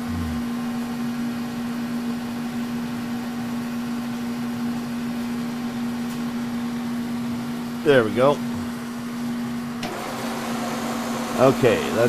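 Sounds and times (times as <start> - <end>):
milling machine humming: 0.0 - 12.0.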